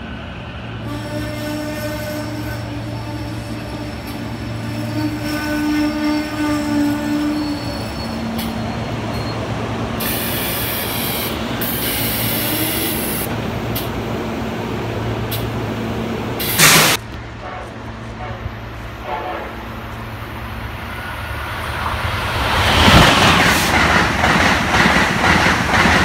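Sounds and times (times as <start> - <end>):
electric train hum and squeal: 0.0 - 26.0
air brakes hissing: 10.0 - 13.3, 16.4 - 17.0.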